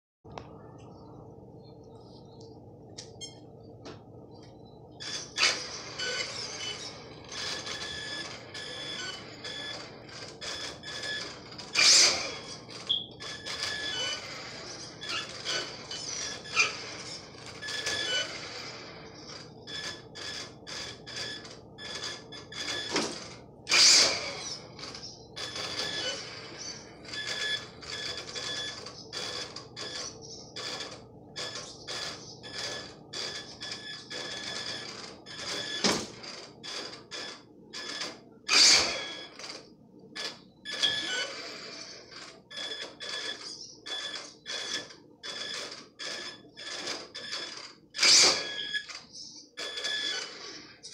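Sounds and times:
toy car motor whining: 5.0s - 9.7s, 10.5s - 21.4s, 23.7s - 27.7s, 37.8s - 39.4s, 40.3s - 45.5s, 46.6s - 48.9s, 49.6s - 50.9s.

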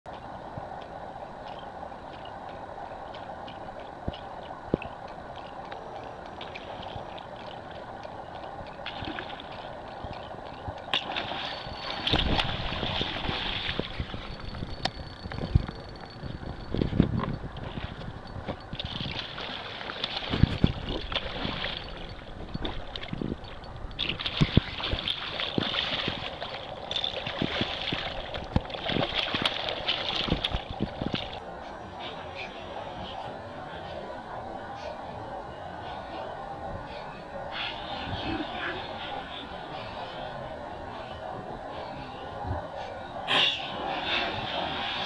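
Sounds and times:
water wash: 0.1s - 45.0s.

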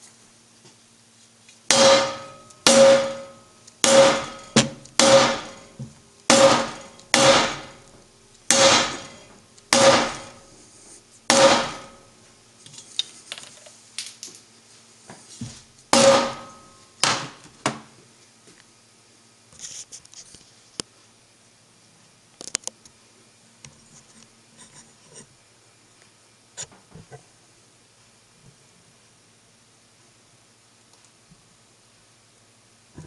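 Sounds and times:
hammer striking metal wheel rim: 1.7s - 7.9s, 8.5s - 10.4s, 11.3s - 12.0s, 15.9s - 17.4s.

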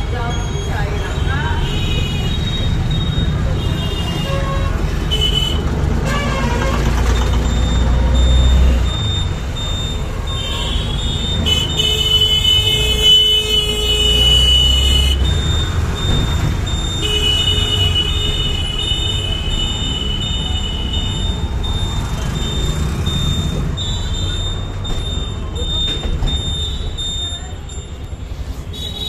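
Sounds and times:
vehicle engine rumble: 0.0s - 29.0s.

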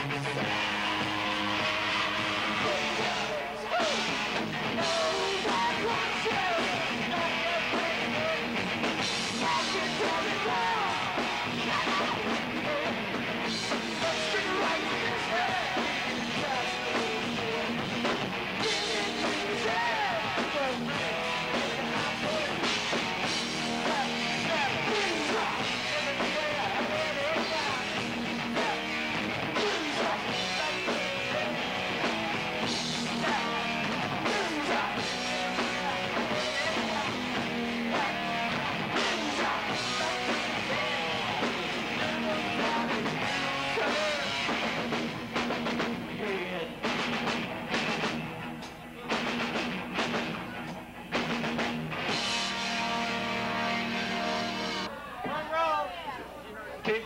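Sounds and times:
male singer: 0.0s - 23.0s, 23.6s - 44.6s, 46.1s - 46.8s
drums with cymbals: 0.0s - 53.0s
electric guitar: 0.0s - 55.0s.

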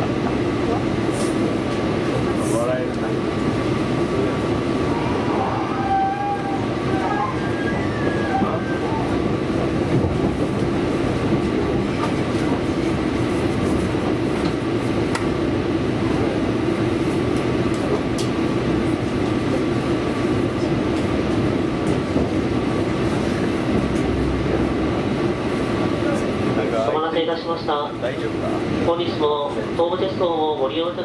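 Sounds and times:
rumble of train wheels on rails: 0.0s - 31.0s.

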